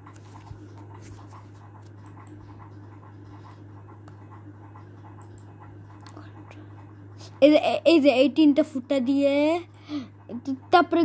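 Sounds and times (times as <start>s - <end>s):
scratching and rustling handling noise: 0.0s - 5.8s
steady low hum: 0.0s - 11.0s.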